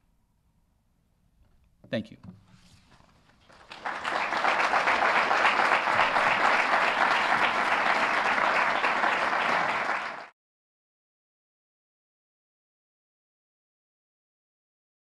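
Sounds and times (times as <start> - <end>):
audience applauding: 3.4 - 10.3.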